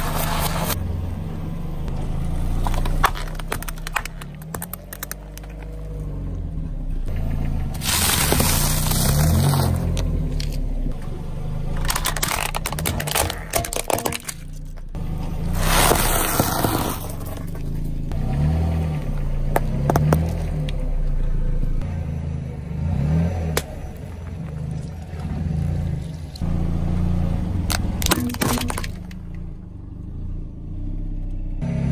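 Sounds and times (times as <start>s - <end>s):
car engine running low: 0.0s - 31.9s
tyre crunching rice cakes: 7.8s - 10.6s, 11.8s - 14.6s.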